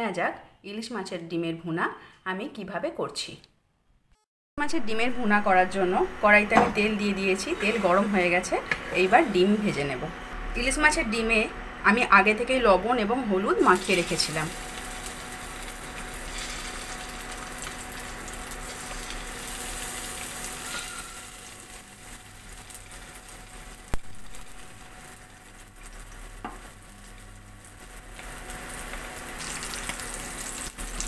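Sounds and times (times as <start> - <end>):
fish roe sizzling in hot oil: 7.1 - 9.4, 13.5 - 31.0.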